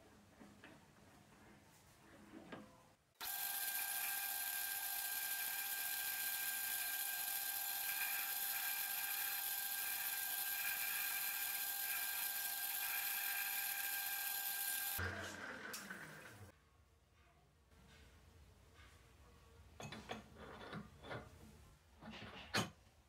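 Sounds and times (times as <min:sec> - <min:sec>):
metal lathe whining: 0:03.2 - 0:16.4.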